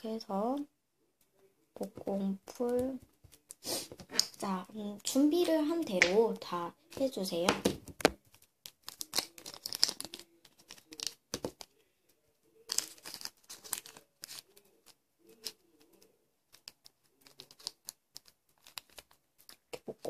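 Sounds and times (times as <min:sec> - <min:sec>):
plastic bag crinkling: 0:12.6 - 0:14.5.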